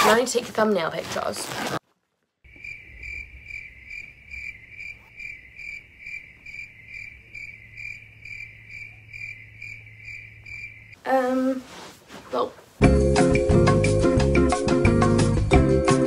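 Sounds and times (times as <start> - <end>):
crickets chirping: 2.4 - 11.0.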